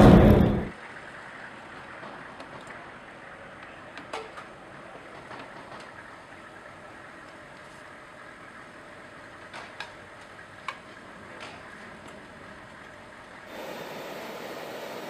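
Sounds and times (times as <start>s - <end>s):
jet engine noise: 0.0s - 15.0s
faint high whine: 13.5s - 15.0s
jet hiss: 13.5s - 15.0s.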